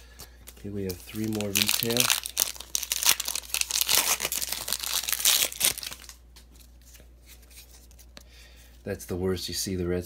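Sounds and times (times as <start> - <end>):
plastic wrapper crinkling and tearing: 0.5 - 7.0.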